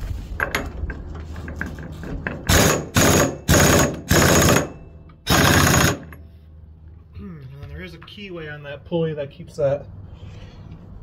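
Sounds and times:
impact wrench bursts: 0:02.4 - 0:06.2.

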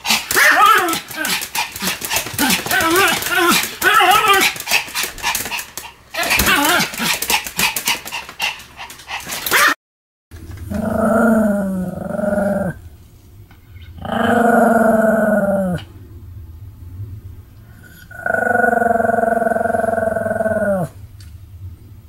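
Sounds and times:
small dog barking: 0:00.0 - 0:01.4, 0:09.5 - 0:09.8.

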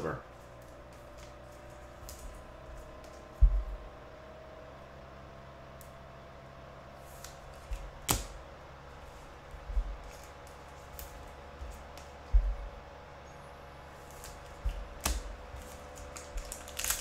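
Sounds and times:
faint steady hum: 0:00.0 - 0:17.0
cards handled on tabletop: 0:09.6 - 0:12.5.

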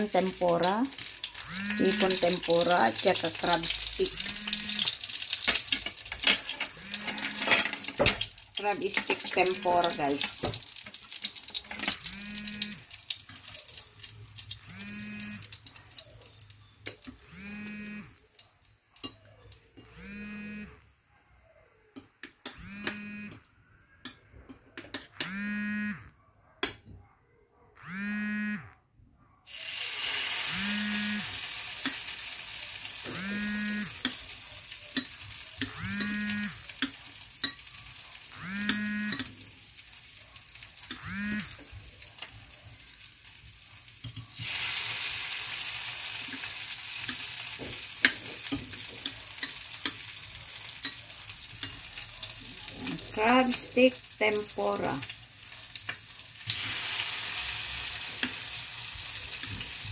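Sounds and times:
food sizzling in hot oil: 0:00.0 - 0:20.4, 0:29.5 - 0:59.9
tongs clinking: 0:03.4 - 0:12.1, 0:34.0 - 0:39.4, 0:46.3 - 0:53.6.

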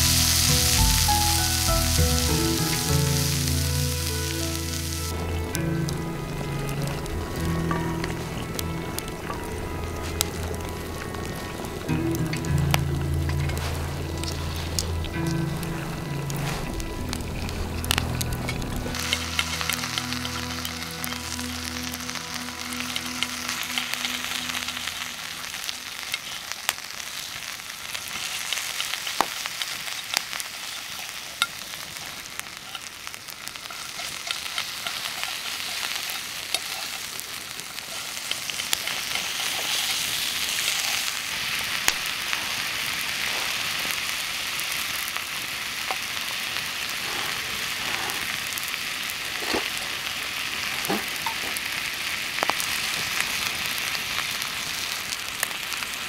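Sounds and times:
steak sizzling in a skillet: 0:00.0 - 0:56.0
sharp pops and crackles: 0:11.9 - 0:56.0.

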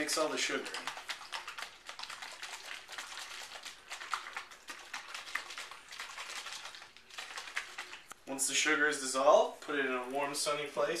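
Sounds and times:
liquid sloshing in plastic bottle: 0:00.0 - 0:08.3.

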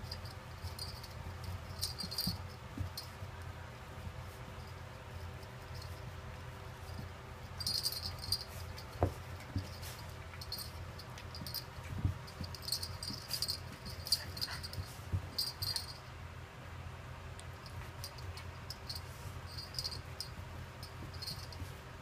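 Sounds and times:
dog claws clicking and rattling: 0:00.0 - 0:03.2, 0:07.5 - 0:16.0.

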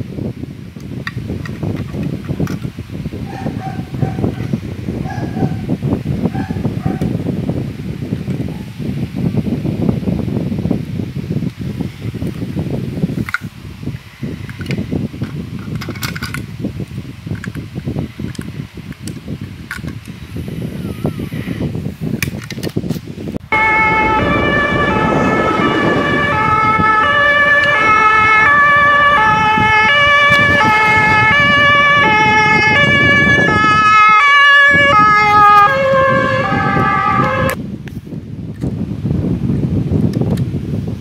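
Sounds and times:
two-tone emergency siren: 0:23.5 - 0:37.6.

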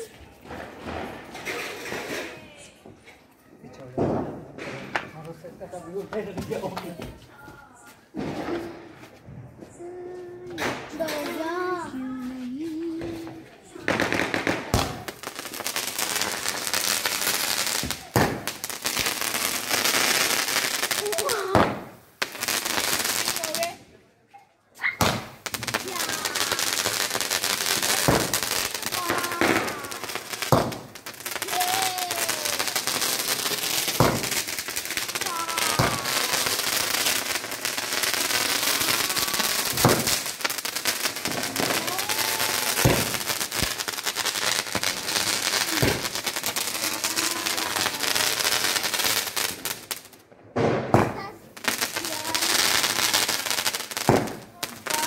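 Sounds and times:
firework fountain hissing: 0:13.0 - 0:23.8, 0:24.9 - 0:50.3, 0:50.9 - 0:55.0.

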